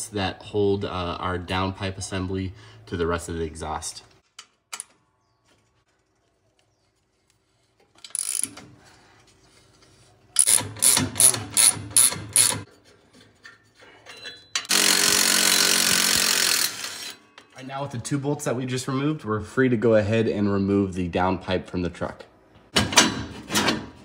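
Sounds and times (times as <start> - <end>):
hand ratchet clicking: 8.0 - 8.6, 10.4 - 12.7.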